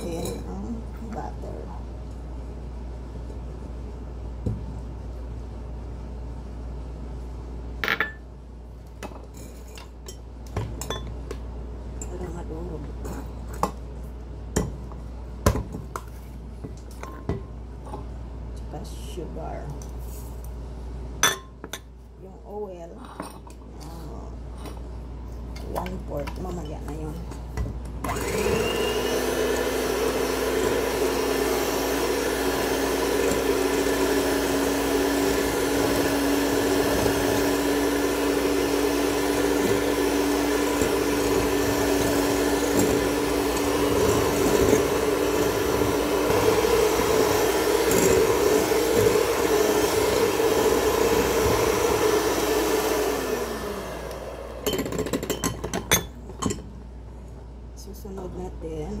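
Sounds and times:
electric hand mixer beating: 28.1 - 55.3.

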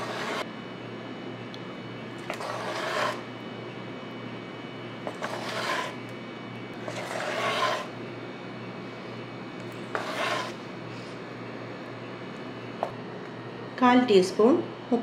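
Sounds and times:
metal spoon scraping bowl: 0.0 - 0.4, 2.2 - 3.3, 5.1 - 6.0, 6.8 - 8.0, 9.9 - 10.6.

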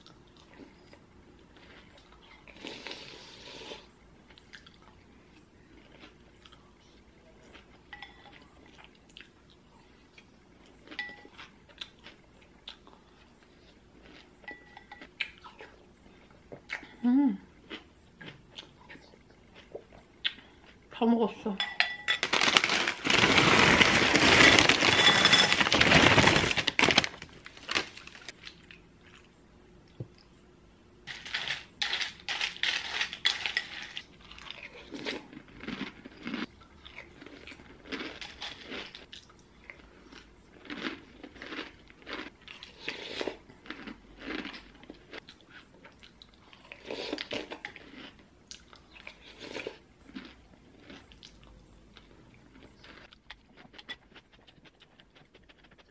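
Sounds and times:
slurping and chewing: 33.4 - 55.9.

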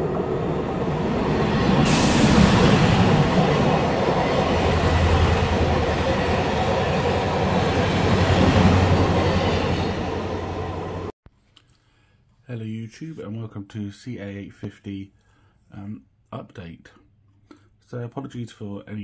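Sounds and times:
train rumbling on rails: 0.0 - 11.1.

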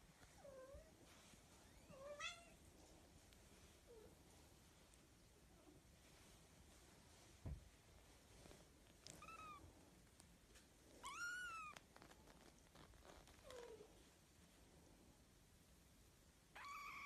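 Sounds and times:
soft bump: 7.4 - 7.8
kitten meowing: 9.1 - 9.6, 11.0 - 11.8, 16.6 - 17.0.

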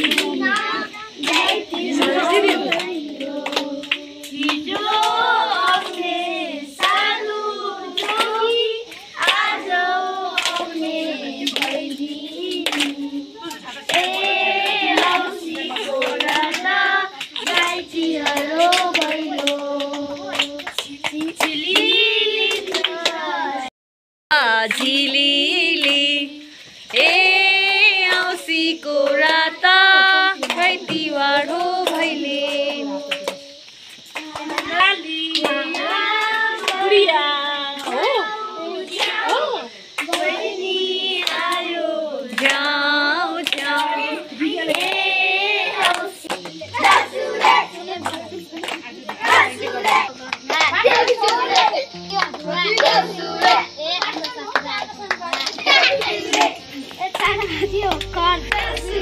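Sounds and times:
hand claps: 0.0 - 6.2, 6.8 - 7.2, 7.9 - 23.3, 24.6 - 25.2, 29.0 - 37.1, 37.8 - 38.2, 38.9 - 41.6, 42.3 - 42.7, 43.4 - 45.1, 45.8 - 59.0
children singing: 0.0 - 23.7, 25.2 - 48.6, 49.2 - 54.2, 55.5 - 59.0
high voice singing: 57.2 - 59.0.

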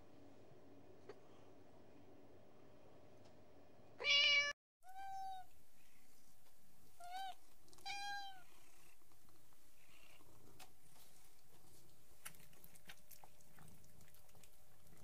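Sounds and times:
cats meowing: 4.0 - 5.5, 7.0 - 8.5.

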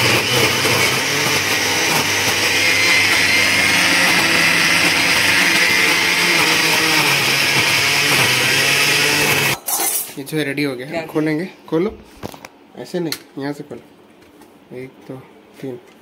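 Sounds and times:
mixer grinder grinding: 0.0 - 9.6.

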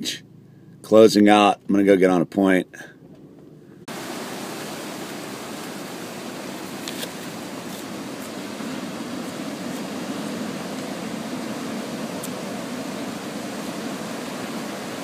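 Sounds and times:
heavy surf on rocky shore: 3.9 - 15.0.

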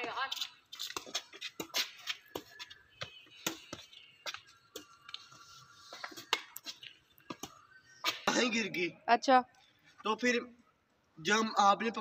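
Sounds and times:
rackets striking shuttlecock: 0.8 - 5.2, 6.0 - 8.2.

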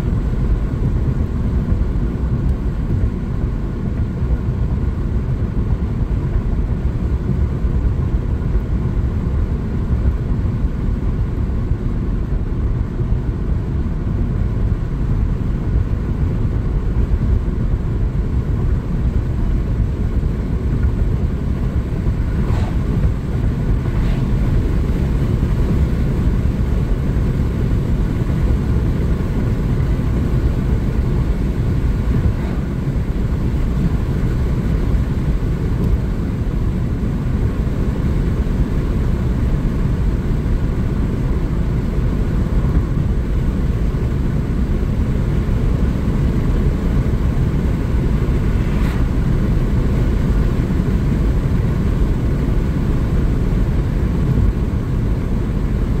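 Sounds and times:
tyres rumbling on asphalt: 0.0 - 56.0
air rushing past car: 19.1 - 56.0.

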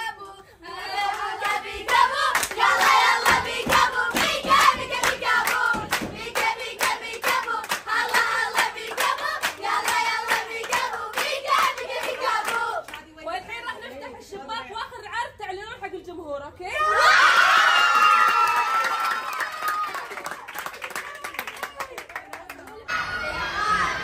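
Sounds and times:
voices singing: 0.0 - 12.9
rhythmic hand clapping: 0.7 - 13.0, 18.8 - 22.8.

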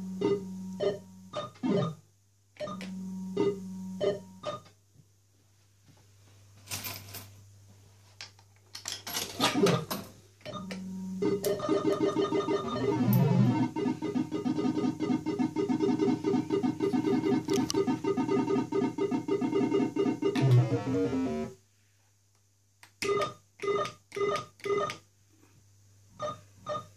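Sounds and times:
electronic jingle: 11.2 - 21.5
noisy electronic bursts: 11.3 - 21.6.

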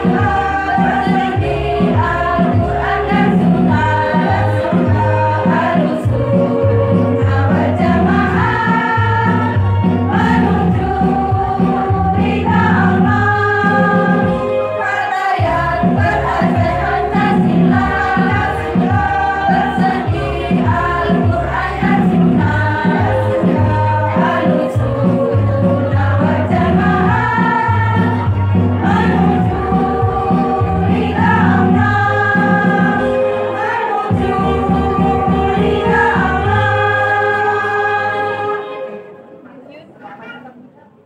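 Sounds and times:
women's choir singing: 0.0 - 39.4.

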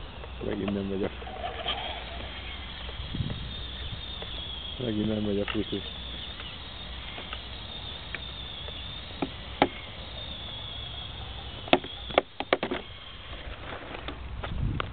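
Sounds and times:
wind rumble on microphone: 0.0 - 6.0, 12.8 - 14.9
electric motor high whine: 0.0 - 14.2.

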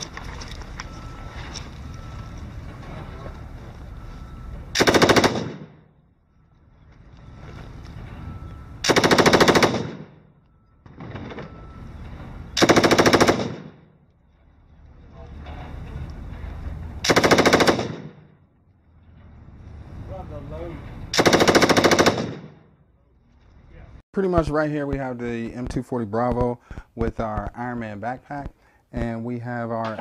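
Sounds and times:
machine gun bursts: 4.8 - 5.6, 8.8 - 10.0, 12.6 - 13.7, 17.0 - 18.0, 21.2 - 22.4.

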